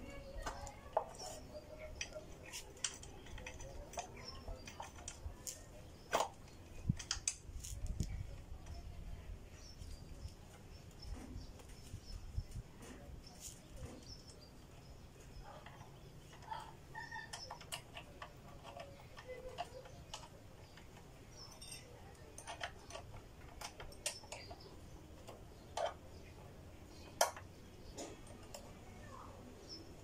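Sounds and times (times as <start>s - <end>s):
faint clicks and taps: 9.6s - 29.3s.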